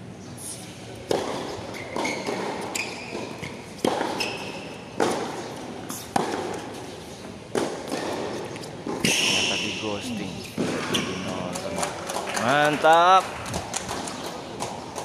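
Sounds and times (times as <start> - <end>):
tennis ball bounces: 1.0 - 6.9, 7.5 - 9.3, 10.4 - 15.0
tennis racket strikes: 1.1 - 6.8
shoe squeaks: 1.7 - 6.2, 8.5 - 11.5.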